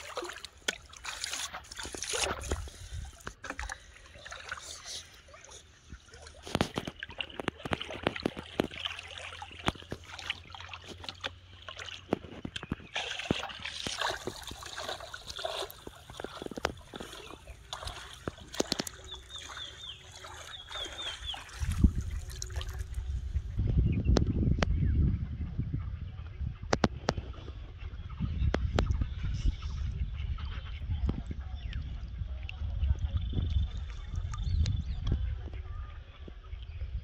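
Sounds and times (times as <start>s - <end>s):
river water splashing: 0.0s - 23.4s.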